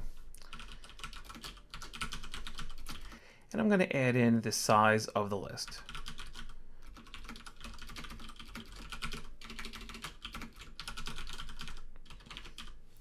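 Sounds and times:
typing on computer keyboard: 0:00.5 - 0:03.2, 0:05.8 - 0:12.8.

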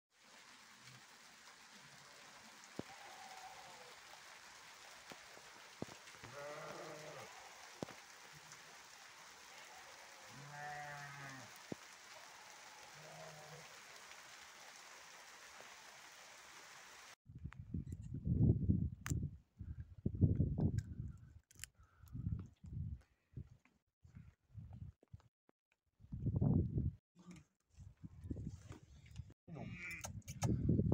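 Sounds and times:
light rain hiss: 0:00.1 - 0:17.2
raindrop taps: 0:04.2 - 0:09.4, 0:10.7 - 0:12.2
sheep bleating: 0:06.2 - 0:07.6, 0:09.6 - 0:11.5, 0:29.6 - 0:30.0.

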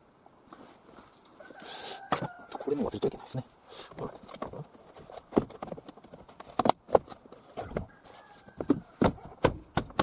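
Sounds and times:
hollow plastic knocks: 0:08.6 - 0:10.0.

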